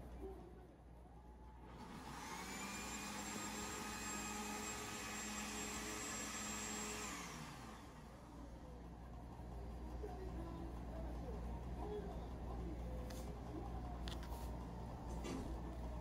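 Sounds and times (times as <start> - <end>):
appliance motor whirring: 1.4 - 9.3.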